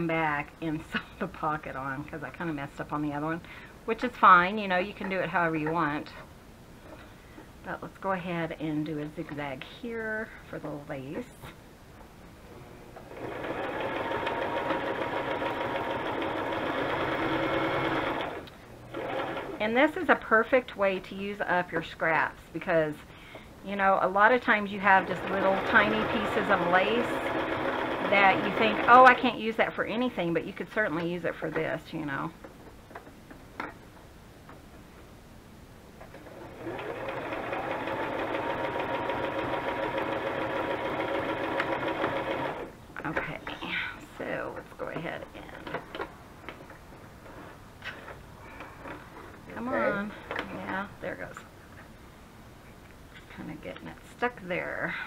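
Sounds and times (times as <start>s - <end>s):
sewing machine running: 13.1s - 19.6s, 24.8s - 29.2s, 36.2s - 42.7s.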